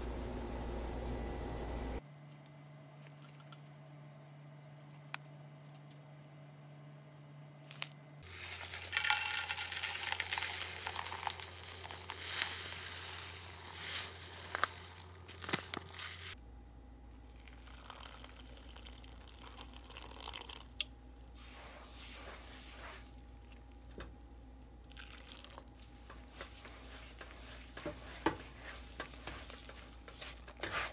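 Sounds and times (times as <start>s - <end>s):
hand crumbling granules in bowl: 7.7s - 16.4s, 21.1s - 30.9s
flour pouring into steel bowl: 8.3s - 16.4s, 21.4s - 24.0s, 25.0s - 30.9s.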